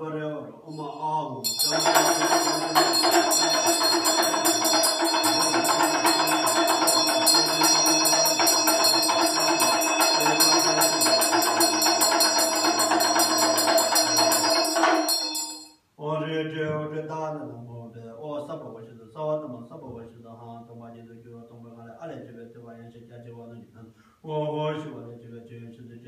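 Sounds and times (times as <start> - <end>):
hand bell ringing rapidly: 0.8 - 15.8
man chanting low: 5.2 - 11.8.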